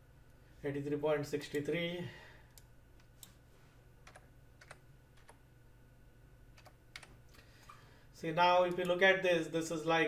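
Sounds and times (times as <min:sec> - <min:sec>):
computer keyboard keystrokes: 0:04.0 - 0:05.4, 0:06.6 - 0:07.2.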